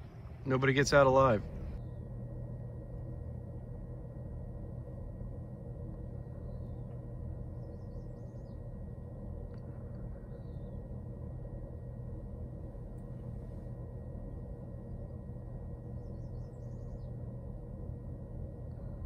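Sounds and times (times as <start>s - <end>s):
low outdoor background rumble: 0.0s - 19.0s
birds chirping: 6.1s - 9.0s, 9.6s - 11.2s, 14.8s - 17.5s.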